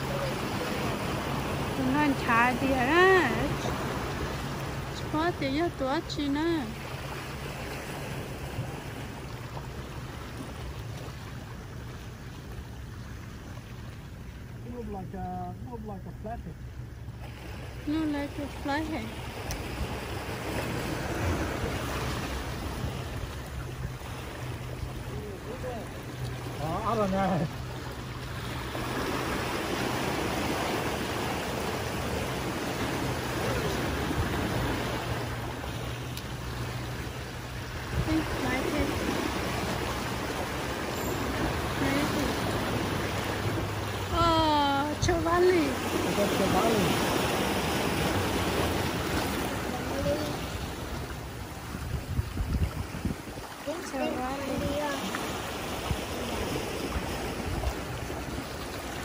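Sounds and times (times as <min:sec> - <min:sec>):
sea waves on rocks: 0:00.0 - 0:15.7, 0:16.4 - 0:59.0
wind rumbling on microphone: 0:37.6 - 0:59.0.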